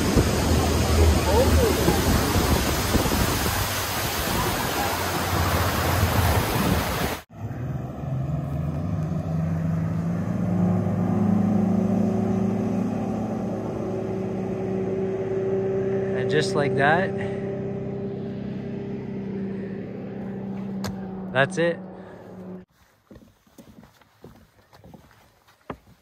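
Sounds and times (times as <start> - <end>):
rushing wind and water: 0.0 - 7.3, 9.4 - 21.6
outboard motor droning: 0.0 - 22.7
boat engine hum: 0.0 - 26.0.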